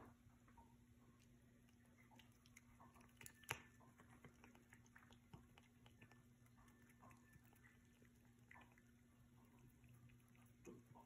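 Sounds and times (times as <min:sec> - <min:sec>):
kitten licking wet clicks: 0:01.2 - 0:11.0.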